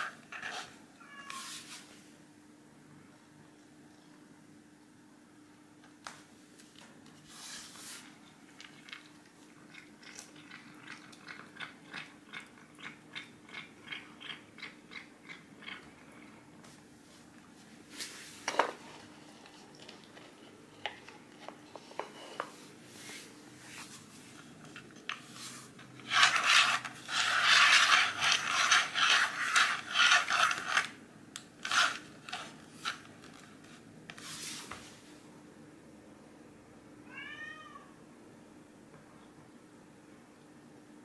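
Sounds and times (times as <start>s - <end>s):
bottle caps scraping on wooden floor: 0.0s - 0.8s, 25.4s - 30.9s, 31.6s - 33.0s.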